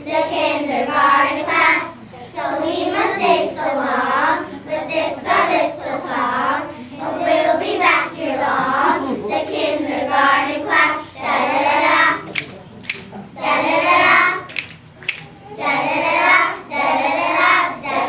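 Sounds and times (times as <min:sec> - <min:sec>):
hands clapping: 0:12.3 - 0:13.1, 0:14.5 - 0:15.3
children singing: 0:15.1 - 0:18.0.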